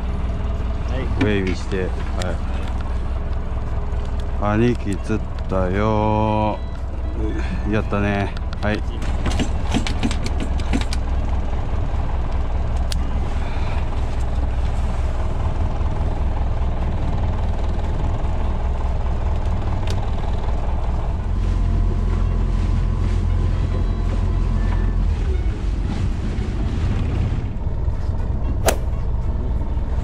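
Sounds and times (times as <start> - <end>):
boat engine rumbling: 0.0 - 30.0.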